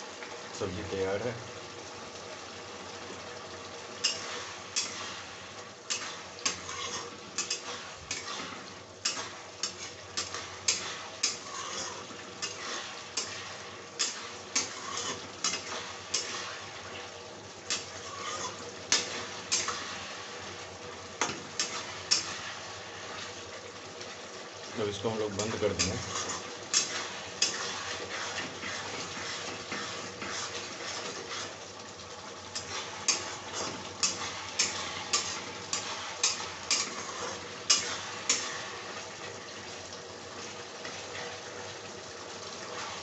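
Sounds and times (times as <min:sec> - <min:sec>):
curry simmering: 0:00.0 - 0:43.0
spatula clinking and scraping pan: 0:04.0 - 0:05.2, 0:05.8 - 0:16.6, 0:17.7 - 0:20.0, 0:21.2 - 0:22.6, 0:25.3 - 0:31.6, 0:32.5 - 0:38.7.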